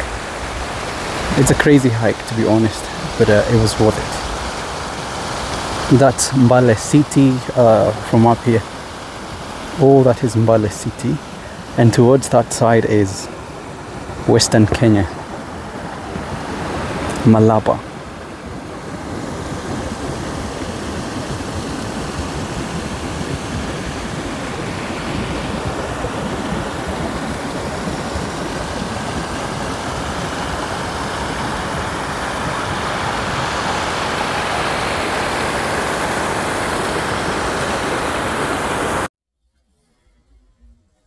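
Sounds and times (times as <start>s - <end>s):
rushing outdoor noise: 0.0s - 39.1s.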